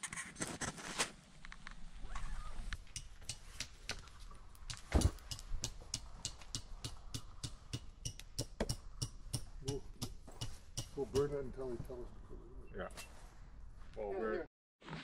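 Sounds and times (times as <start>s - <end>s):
campfire crackling and popping: 1.3s - 10.8s.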